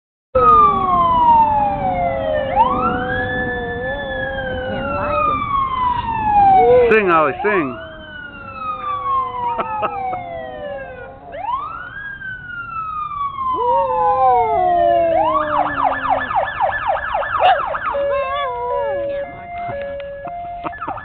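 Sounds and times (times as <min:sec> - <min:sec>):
fire truck siren wailing and yelping: 0:00.4 - 0:21.0
dog howling: 0:02.3 - 0:11.9, 0:13.4 - 0:19.6.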